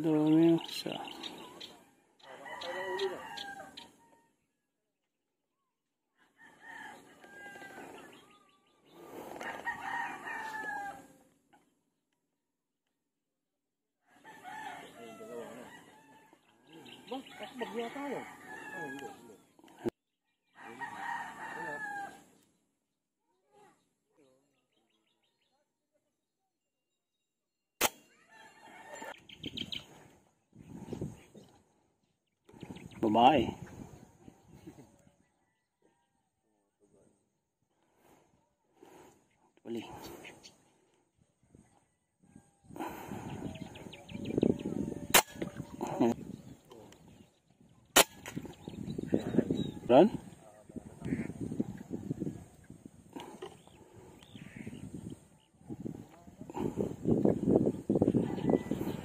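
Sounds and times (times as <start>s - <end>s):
rooster crowing: 2.2s - 4.3s, 6.2s - 8.4s, 9.4s - 11.2s, 14.1s - 16.4s, 17.4s - 19.2s, 20.6s - 22.2s, 28.2s - 29.1s, 58.2s - 59.0s.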